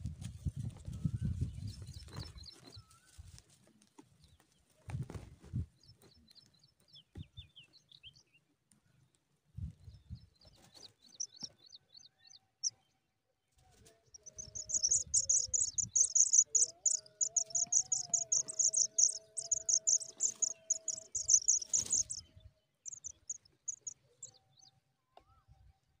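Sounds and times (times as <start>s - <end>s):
nestlings peeping: 1.3s - 3.0s, 10.3s - 12.1s, 13.8s - 24.7s.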